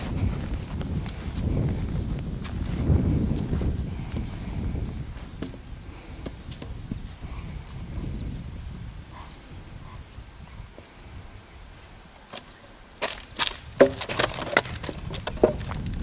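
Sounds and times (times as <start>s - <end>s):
hooves crunching loose fill: 0.0s - 9.0s, 12.3s - 16.0s.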